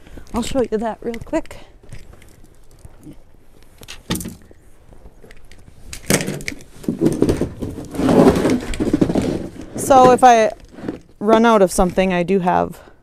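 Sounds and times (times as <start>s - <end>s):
plastic container scraping: 6.1s - 12.1s.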